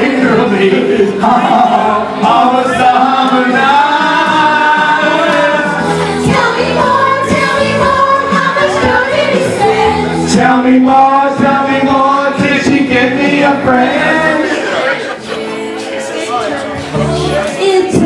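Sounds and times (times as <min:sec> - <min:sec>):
background music: 0:00.0 - 0:18.0
other voices singing: 0:00.0 - 0:18.0
woman singing through microphone: 0:01.3 - 0:10.4, 0:16.8 - 0:18.0.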